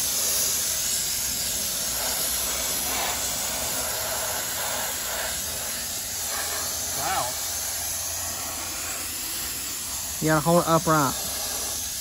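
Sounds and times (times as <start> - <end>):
steam cleaner hissing: 0.0 - 12.0.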